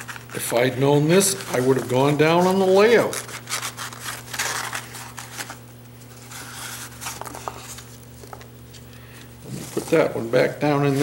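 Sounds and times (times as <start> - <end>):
packing material rustling: 0.0 - 11.0
steady low hum: 0.0 - 11.0.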